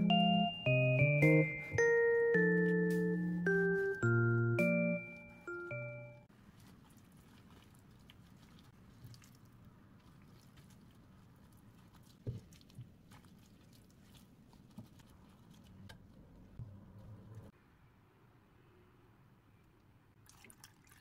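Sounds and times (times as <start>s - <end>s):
small wet clicks and taps: 6.6s - 17.2s.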